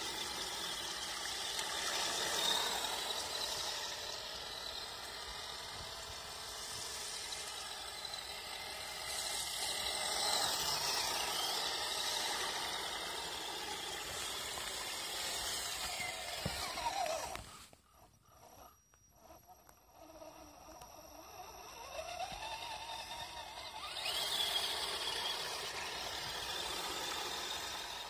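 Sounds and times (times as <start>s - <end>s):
electric motor whine: 0.0s - 28.0s.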